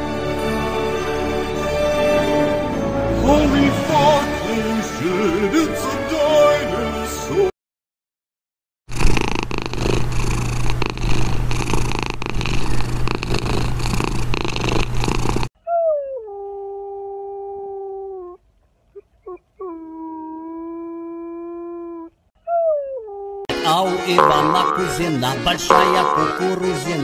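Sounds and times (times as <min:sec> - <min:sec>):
dog howling: 0:15.7 - 0:18.4, 0:19.3 - 0:23.5.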